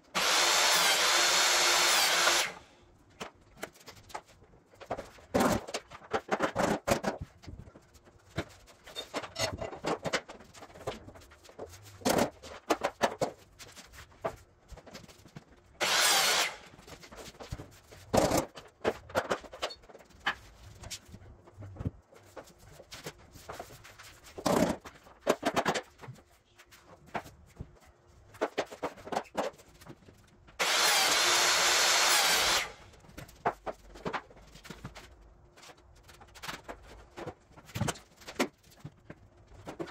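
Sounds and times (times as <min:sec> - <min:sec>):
power tool running: 0:00.1 - 0:02.7, 0:15.8 - 0:16.7, 0:30.6 - 0:32.8.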